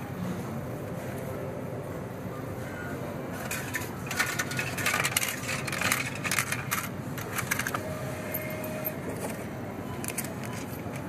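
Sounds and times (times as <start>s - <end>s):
coins clattering in a machine: 3.4s - 9.3s.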